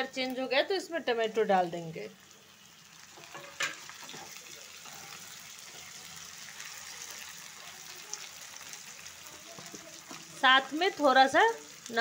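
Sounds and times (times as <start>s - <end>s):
vegetables sizzling in oil: 0.0s - 12.0s
spatula stirring in pan: 2.8s - 12.0s.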